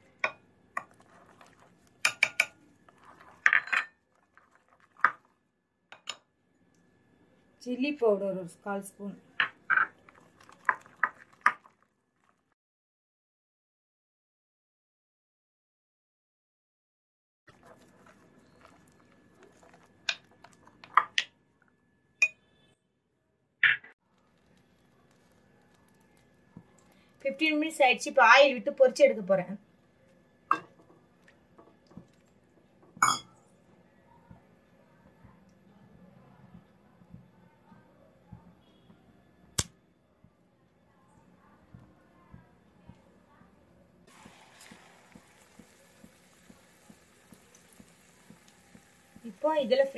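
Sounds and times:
spoon scraping batter: 0.8s - 5.3s, 17.5s - 20.9s
spoon clinking against bowl: 2.0s - 2.6s, 22.2s - 22.4s, 33.0s - 33.4s.

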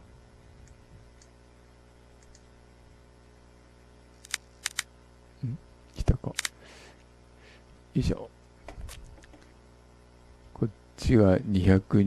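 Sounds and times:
computer mouse clicking: 2.2s - 2.4s, 4.2s - 4.9s.

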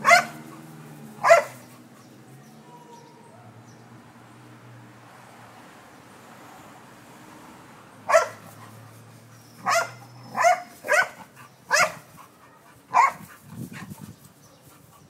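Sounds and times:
dog barking: 0.0s - 0.6s, 1.2s - 1.7s, 8.1s - 8.6s, 9.6s - 13.3s.

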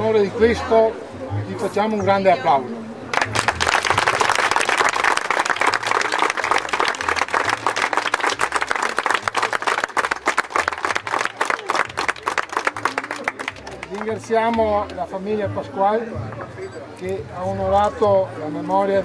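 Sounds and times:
crowd applauding: 3.1s - 14.2s.

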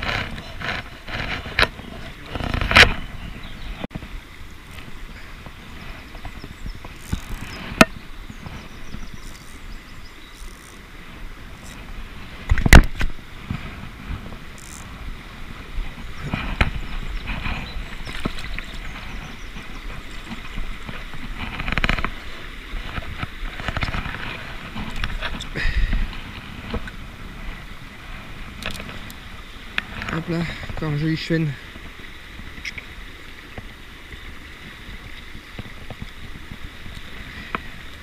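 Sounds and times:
shallow river water running: 0.0s - 38.0s
camera handling knocks and rumble: 12.4s - 13.6s, 20.2s - 22.2s, 28.6s - 29.2s.

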